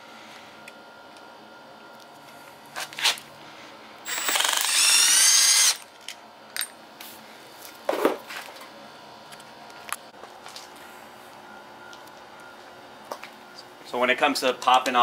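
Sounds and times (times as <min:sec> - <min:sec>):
impact driver whining and hammering: 0:04.1 - 0:05.8.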